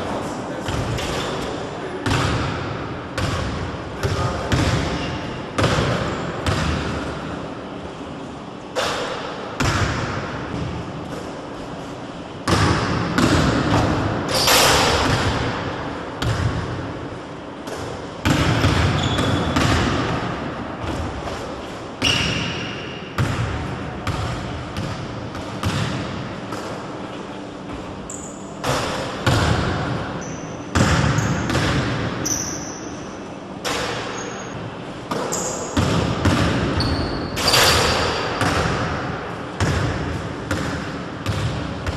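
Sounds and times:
basketball bouncing on wooden floor: 0:03.2 - 0:05.0, 0:12.5 - 0:14.0, 0:16.2 - 0:16.7, 0:17.7 - 0:20.2, 0:23.2 - 0:26.7, 0:30.7 - 0:32.1, 0:35.1 - 0:39.0, 0:39.6 - 0:41.9.

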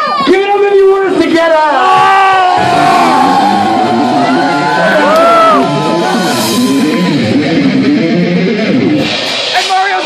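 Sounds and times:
crowd yelling: 0:00.0 - 0:07.7
shouted vocals: 0:01.4 - 0:07.2
live band music: 0:02.6 - 0:10.0.

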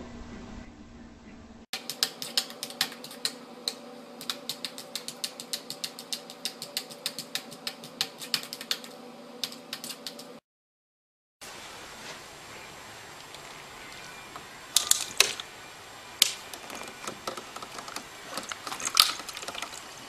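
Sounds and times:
cat paws tapping on plastic: 0:16.2 - 0:20.0.

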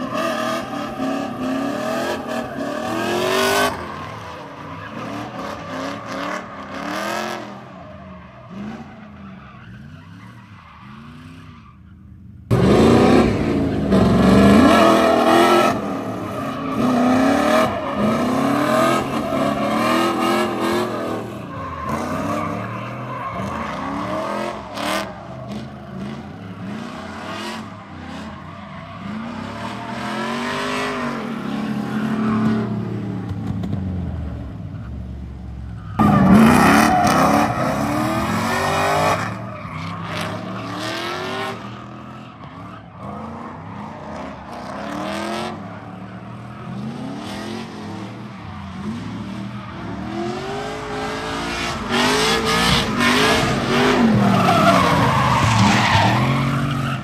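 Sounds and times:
car engines revving: 0:00.0 - 0:57.0
tyres squealing: 0:51.8 - 0:57.0.

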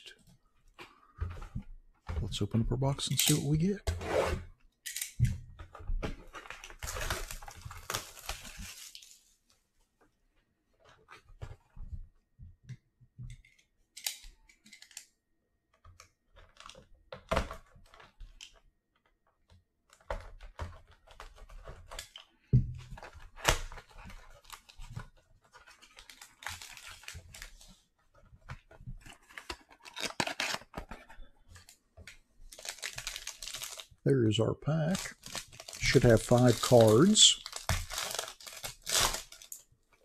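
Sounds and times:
foil pack rustling: 0:32.5 - 0:34.0, 0:34.7 - 0:39.7.

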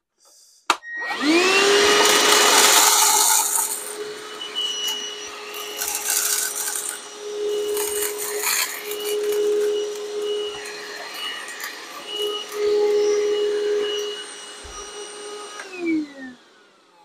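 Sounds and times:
vacuum motor whining: 0:00.8 - 0:17.0
corn kernels clattering in nozzle: 0:02.3 - 0:03.9, 0:05.8 - 0:07.0.

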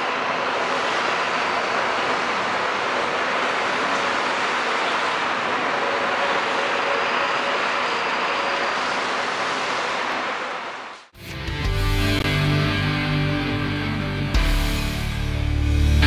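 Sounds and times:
steady rushing noise: 0:00.0 - 0:11.1.

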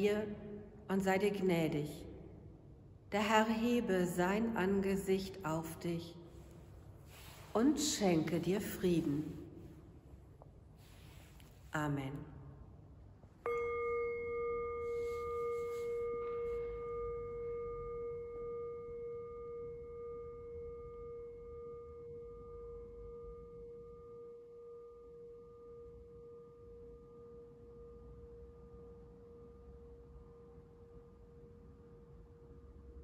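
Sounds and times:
singing bowl ringing: 0:13.4 - 0:32.9.

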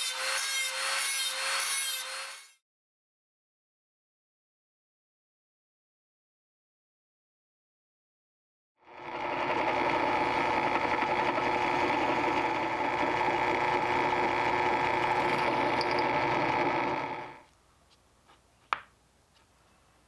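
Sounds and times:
drill press boring: 0:08.9 - 0:17.4.

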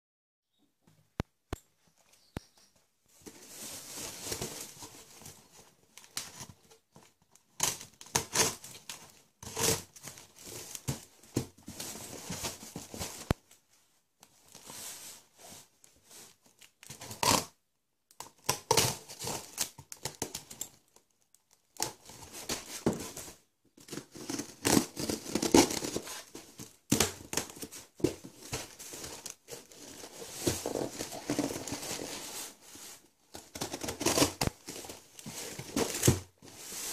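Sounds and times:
packing tape ripping off cardboard: 0:18.2 - 0:20.7, 0:23.8 - 0:32.2, 0:33.4 - 0:36.3.

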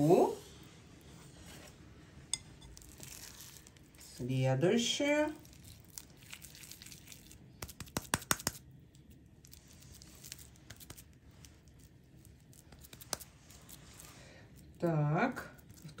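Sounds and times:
soft rustling: 0:00.4 - 0:04.2, 0:09.4 - 0:14.8
sharp taps and clicks: 0:07.6 - 0:08.6.

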